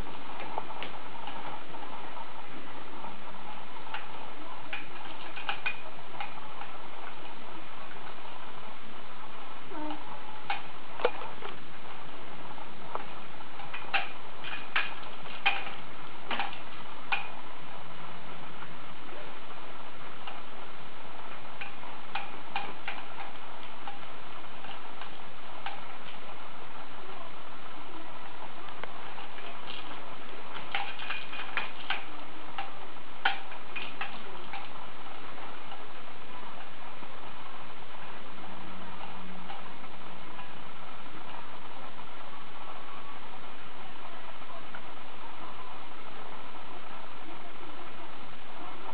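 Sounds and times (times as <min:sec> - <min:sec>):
steady hiss: 0:00.0 - 0:48.9
plastic toys clacking: 0:03.9 - 0:06.4, 0:13.6 - 0:17.3, 0:29.1 - 0:34.8.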